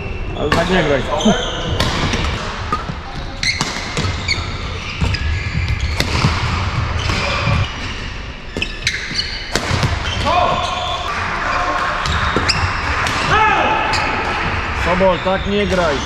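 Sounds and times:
shoes squeaking on court: 0:00.2 - 0:13.1
racket striking shuttlecock: 0:09.1 - 0:10.1.

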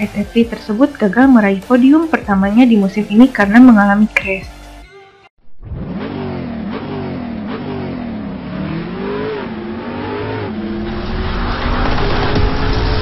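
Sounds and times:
engine revving: 0:05.5 - 0:13.0
rushing noise: 0:10.2 - 0:13.0.

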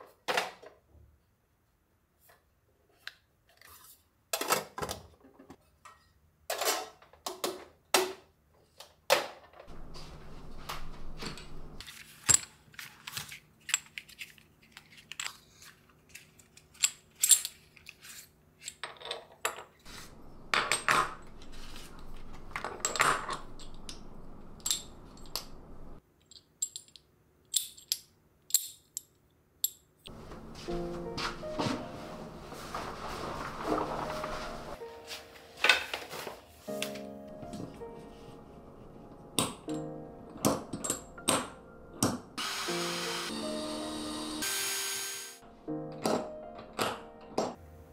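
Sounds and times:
hooks clicking when folded: 0:26.2 - 0:30.1.

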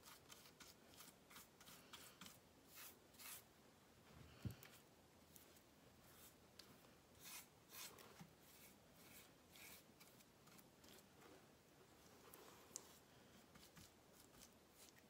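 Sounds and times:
paintbrush swishing on wood: 0:00.0 - 0:03.5, 0:07.2 - 0:15.0.

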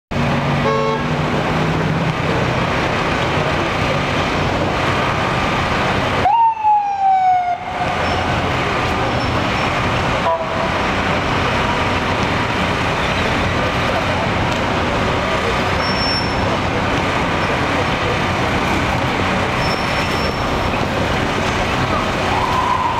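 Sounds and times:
city street traffic: 0:00.1 - 0:22.9
ambulance siren wail: 0:06.2 - 0:08.3, 0:22.2 - 0:22.9.

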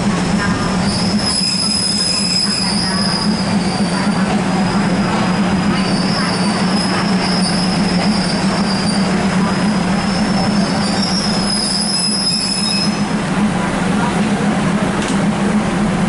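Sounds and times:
train running gear rumble: 0:00.0 - 0:16.0
wheel and brake squeal: 0:00.9 - 0:04.0, 0:05.8 - 0:13.0.

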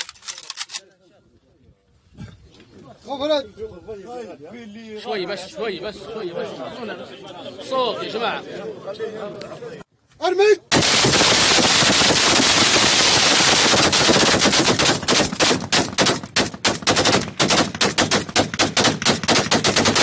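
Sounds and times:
assault rifles firing: 0:10.7 - 0:20.0.

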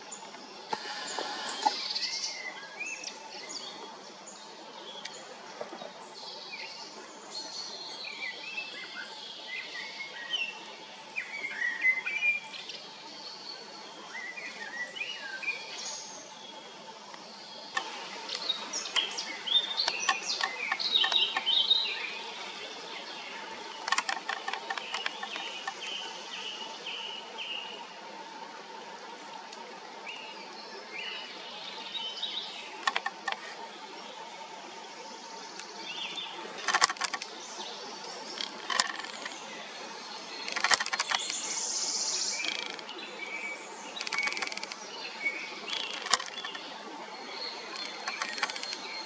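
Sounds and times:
small birds chirping: 0:17.5 - 0:27.8, 0:35.5 - 0:49.0.

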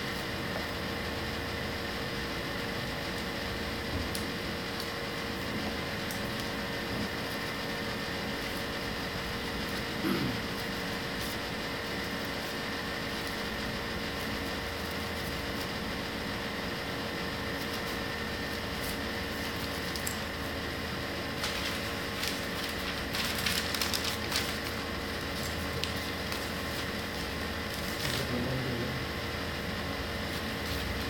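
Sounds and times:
steady background hum: 0:00.0 - 0:31.0
paper rustling and crinkling: 0:21.2 - 0:28.4, 0:30.3 - 0:31.0.

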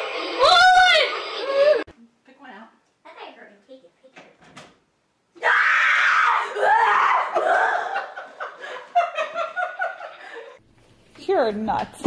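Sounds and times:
child screaming: 0:00.4 - 0:01.9, 0:05.4 - 0:07.4
laughter: 0:07.3 - 0:10.6.

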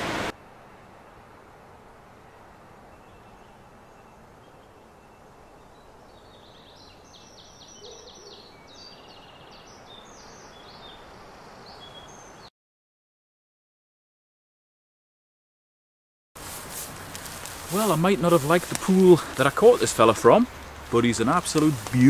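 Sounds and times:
outdoor background hiss: 0:00.0 - 0:12.5, 0:16.4 - 0:22.0
bird chirps and trills: 0:02.9 - 0:12.5.

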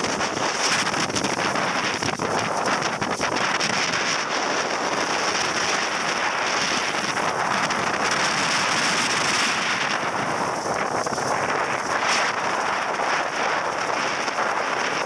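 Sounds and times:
waterfall roar: 0:00.0 - 0:15.0
wind buffeting microphone: 0:00.0 - 0:15.0.

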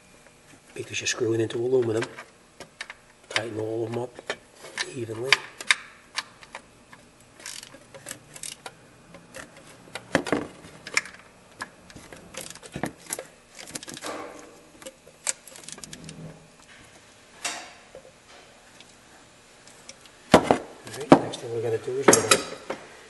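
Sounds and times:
socket ratchet clicking: 0:07.4 - 0:10.1.

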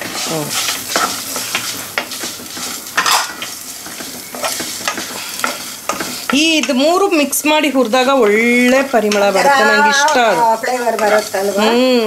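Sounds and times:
light sizzle: 0:00.0 - 0:12.0
wooden spatula scraping spices: 0:00.0 - 0:12.0.

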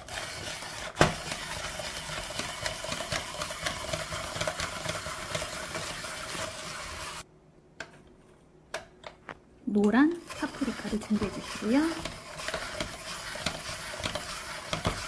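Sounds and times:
spiral slicer humming: 0:10.1 - 0:15.0.

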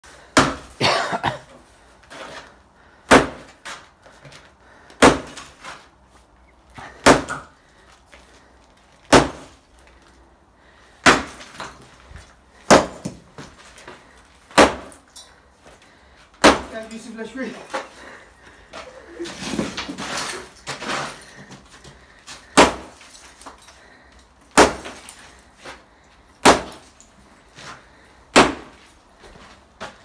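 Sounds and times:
sledgehammer striking concrete: 0:00.3 - 0:00.8, 0:03.0 - 0:03.7, 0:04.9 - 0:05.6, 0:06.8 - 0:07.6, 0:09.1 - 0:09.6, 0:11.0 - 0:11.8, 0:12.6 - 0:13.5, 0:14.5 - 0:15.0, 0:16.4 - 0:17.0, 0:22.4 - 0:23.5, 0:24.5 - 0:25.2, 0:26.4 - 0:27.0, 0:28.3 - 0:28.8.

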